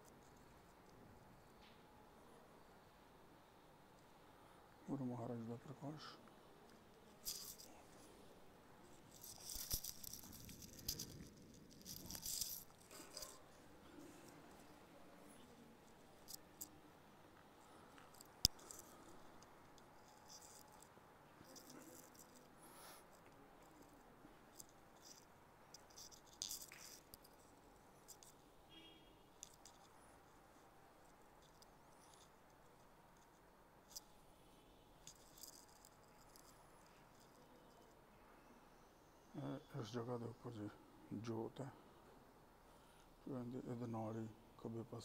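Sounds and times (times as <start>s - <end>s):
faint rustling and rattling: 3.8s - 28.6s, 29.3s - 38.4s.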